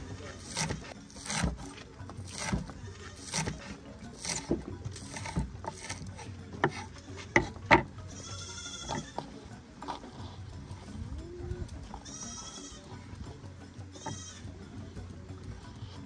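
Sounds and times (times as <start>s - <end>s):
goat bleating: 0.0s - 1.1s, 2.4s - 3.9s, 6.8s - 9.4s, 11.2s - 14.8s.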